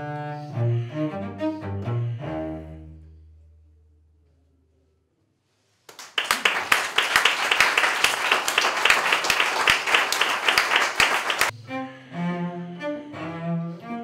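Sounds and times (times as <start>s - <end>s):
cello note: 0.0s - 4.3s
audience applause: 5.9s - 11.5s.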